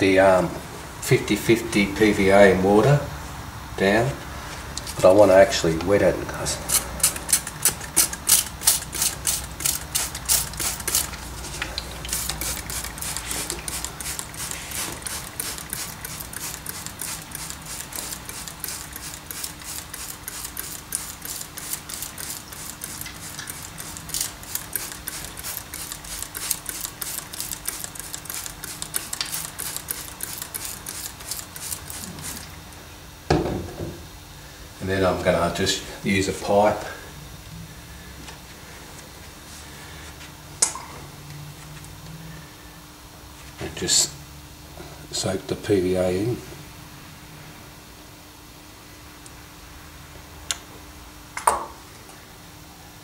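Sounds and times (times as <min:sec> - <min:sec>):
trigger spray bottle spritzing: 0:06.7 - 0:32.5.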